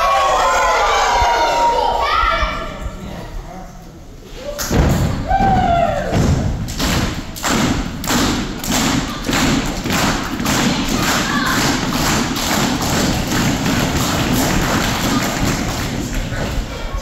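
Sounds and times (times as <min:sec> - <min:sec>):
audience clapping and stomping: 0:04.7 - 0:16.7.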